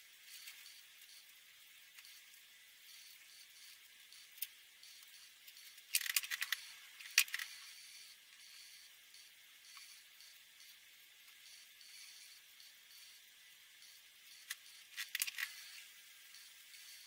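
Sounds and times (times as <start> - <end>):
marker caps clicking: 5.9 - 7.5, 14.5 - 15.5.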